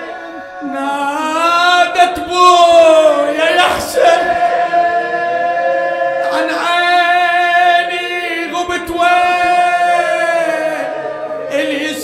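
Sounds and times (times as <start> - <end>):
man chanting: 0.0 - 4.4, 6.2 - 10.9, 11.5 - 12.0.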